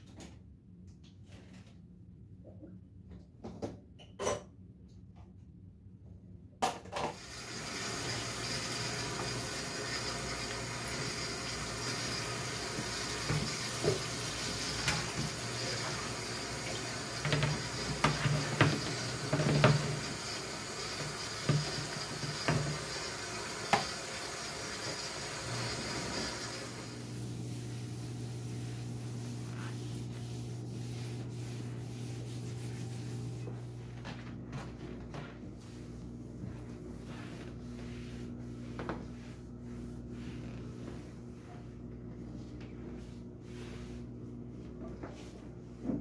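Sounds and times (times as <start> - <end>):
dishes clinking against sink: 4.0 - 4.5
faucet running into sink: 7.1 - 27.1.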